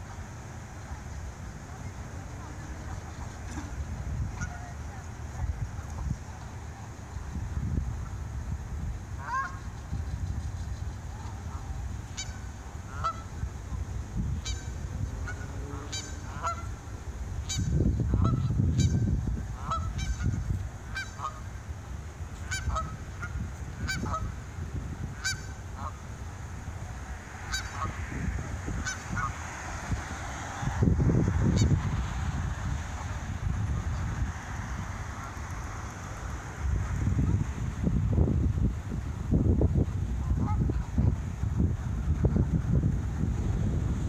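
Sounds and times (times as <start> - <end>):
geese honking: 1.7 - 5.1, 9.2 - 9.9, 11.1 - 13.8, 14.4 - 21.7, 22.4 - 26.1, 27.2 - 30.6, 40.2 - 41.2.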